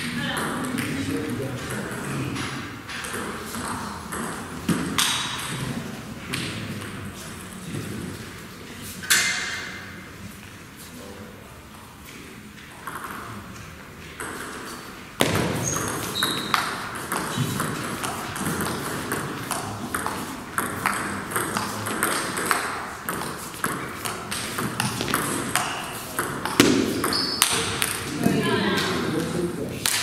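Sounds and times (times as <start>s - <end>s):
ping pong ball hitting bats: 0.0s - 8.0s, 12.7s - 13.5s, 14.1s - 30.0s
ping pong ball bouncing on table: 0.1s - 5.7s, 12.8s - 13.3s, 15.2s - 28.4s.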